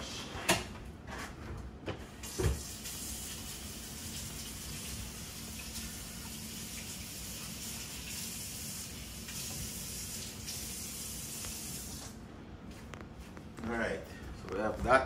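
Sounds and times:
tap running into sink: 2.2s - 2.9s.

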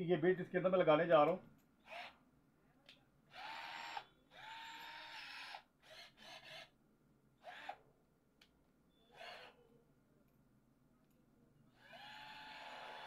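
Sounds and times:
cordless drill motor whining: 3.3s - 6.7s, 7.4s - 7.8s, 9.1s - 9.6s, 11.8s - 13.0s.

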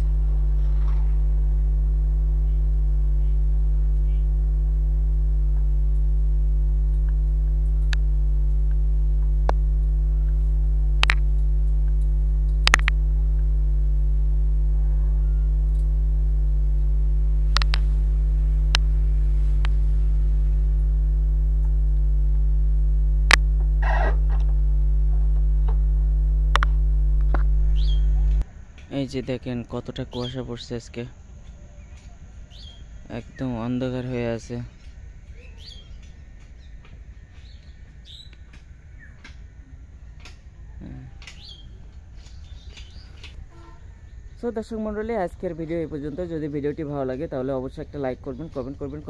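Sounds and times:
electrical mains hum: 0.0s - 49.0s
sharp single clicks: 11.0s - 13.0s, 23.3s - 23.6s.

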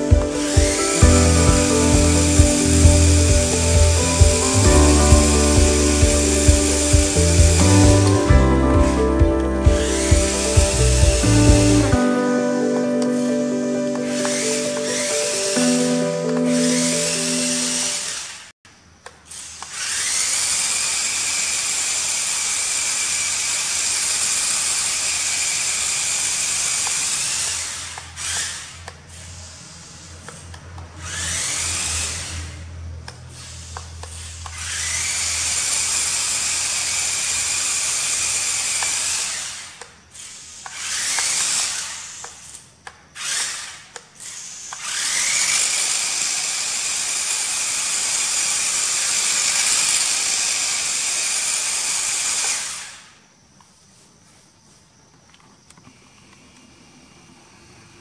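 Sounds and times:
toy car motor whining: 19.3s - 53.1s.

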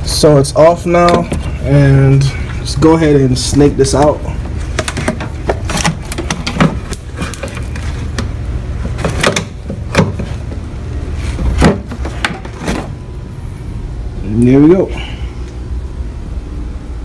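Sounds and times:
metal pipe knocking and scraping: 1.0s - 2.6s.

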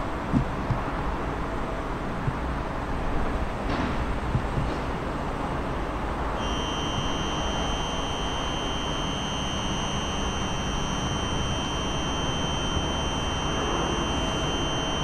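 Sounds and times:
high-pitched buzzer tone: 6.4s - 15.0s.

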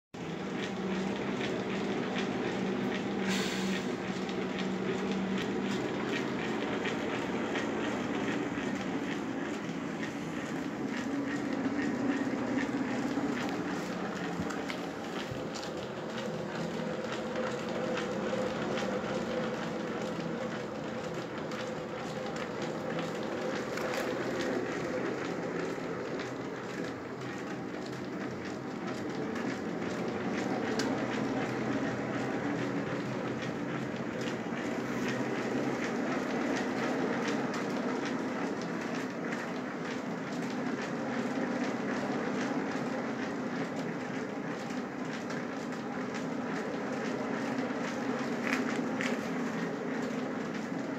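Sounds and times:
light clicks and clacks: 0.2s - 50.9s
mill wheel rumbling and humming: 0.2s - 50.9s.

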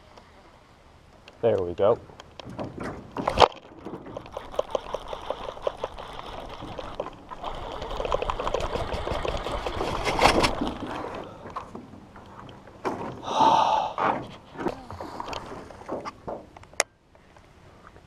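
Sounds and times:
water trickling and splashing: 2.4s - 13.2s.

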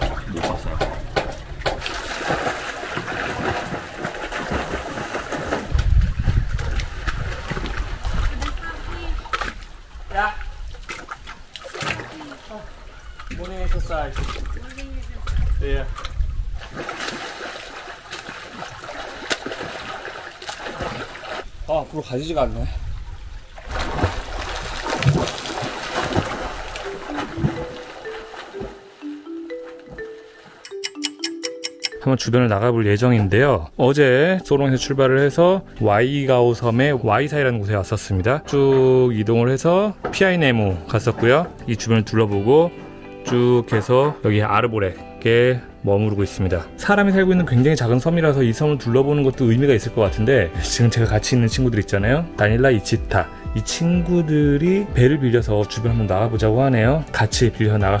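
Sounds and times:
small water splashes: 0.0s - 21.6s, 23.0s - 29.2s
seawater lapping in shallows: 0.0s - 21.7s, 22.8s - 30.6s
mallet-like music notes: 26.7s - 32.8s.

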